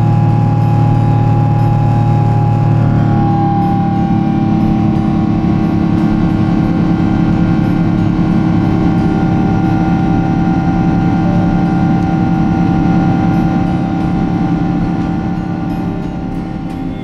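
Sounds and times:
jet engines running: 0:00.0 - 0:17.0
steady tones: 0:00.0 - 0:17.0.

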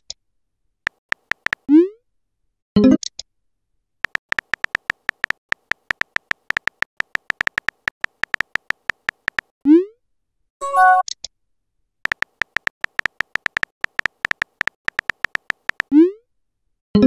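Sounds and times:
phone keyboard key clicks: 0:00.9 - 0:01.7, 0:04.0 - 0:09.5, 0:12.1 - 0:15.9.

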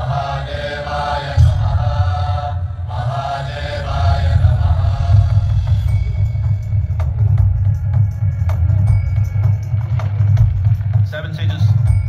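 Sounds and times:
music with deep bass: 0:03.9 - 0:12.0.

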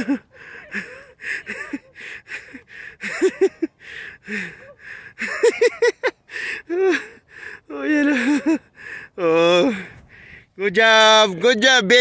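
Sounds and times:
person panting: 0:00.0 - 0:05.4, 0:06.2 - 0:10.5
person laughing: 0:00.0 - 0:08.7.

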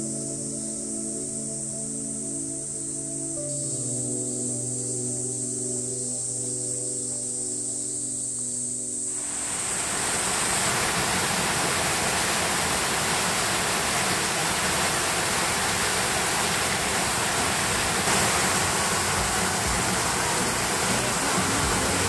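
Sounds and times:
rushing water: 0:09.1 - 0:22.0.

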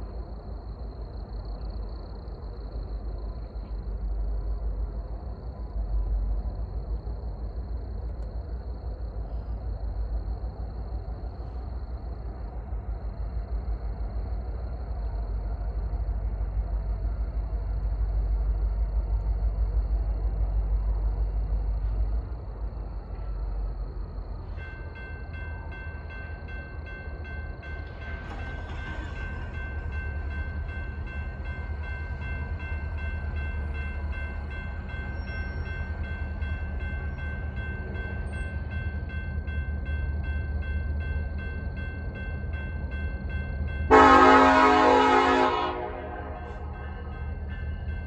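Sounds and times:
crossing warning bell ringing: 0:24.4 - 0:48.0
loud train horn: 0:43.9 - 0:47.2.

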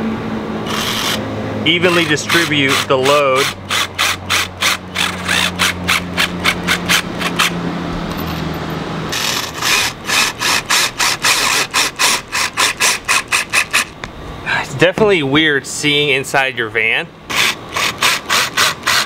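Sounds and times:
cordless drill driving screws: 0:00.7 - 0:01.2, 0:01.8 - 0:07.5, 0:09.2 - 0:13.9, 0:17.3 - 0:19.0.

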